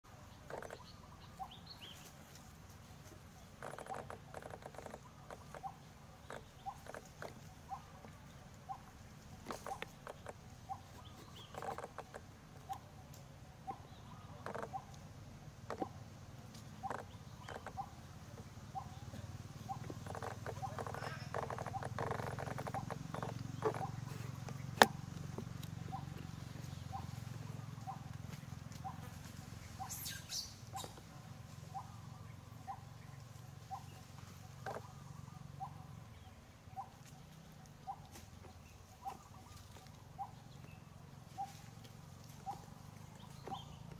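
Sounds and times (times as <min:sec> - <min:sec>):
steady low hum: 0:00.1 - 0:43.9
animal chirping call: 0:16.8 - 0:18.0, 0:18.7 - 0:24.9, 0:26.8 - 0:28.1, 0:29.8 - 0:31.0, 0:33.6 - 0:36.0
squeaky animal chirps: 0:16.8 - 0:18.0, 0:19.6 - 0:24.1.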